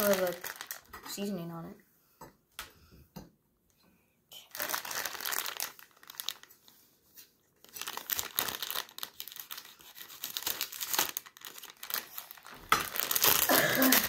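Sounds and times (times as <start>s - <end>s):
plastic bag crinkling: 0.0s - 1.3s, 4.4s - 6.9s, 7.6s - 14.0s.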